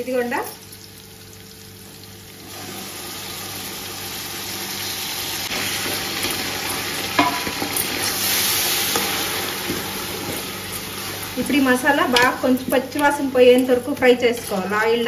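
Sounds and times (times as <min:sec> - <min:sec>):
paste sizzling in hot oil: 0:02.4 - 0:14.8
spatula knocking metal pot: 0:07.2 - 0:07.8.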